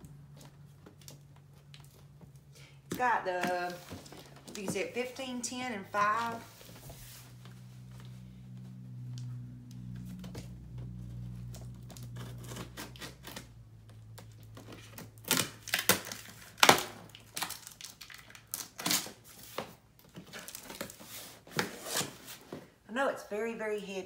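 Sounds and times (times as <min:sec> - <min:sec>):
tape and cardboard ripping: 0:09.1 - 0:22.4
scissors slitting packing tape: 0:11.9 - 0:13.5, 0:14.8 - 0:19.3.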